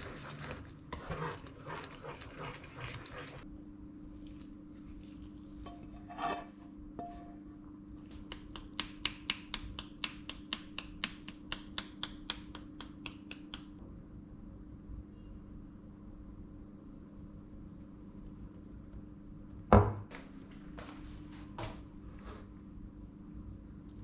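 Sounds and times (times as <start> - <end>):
spatula scraping a pan: 0.0 - 3.4, 5.7 - 7.3
steady low hum: 0.0 - 10.5.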